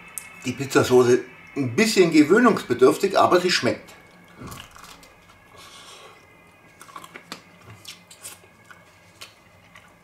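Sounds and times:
person chewing pizza: 4.1 - 10.0.

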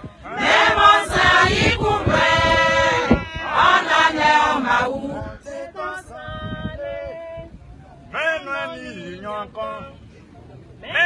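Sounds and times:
church choir chanting: 0.2 - 7.3.

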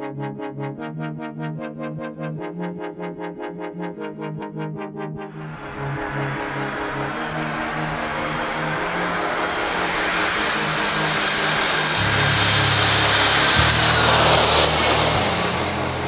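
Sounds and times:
jet airliner passing overhead: 5.4 - 16.0.

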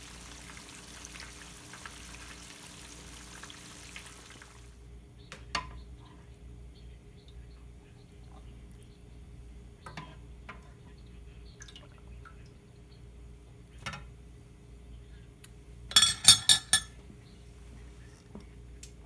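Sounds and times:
metal spoon clinking against pan: 15.9 - 17.0.

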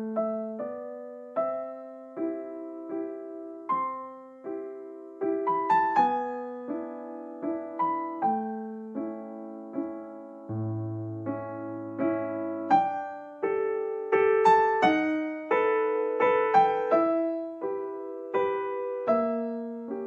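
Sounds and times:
gentle piano melody: 0.0 - 20.0.

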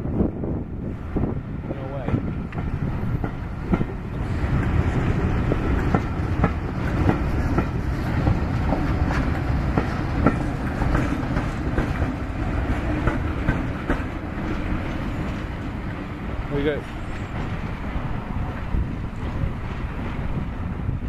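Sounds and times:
low train rumble: 0.0 - 21.0
train wheels clicking over joints: 2.0 - 18.2.

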